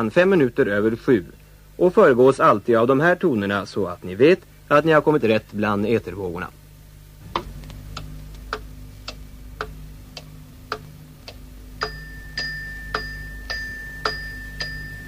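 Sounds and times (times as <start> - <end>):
clock-like ticking: 7.3 - 12.0
steady high tone: 10.7 - 15.0.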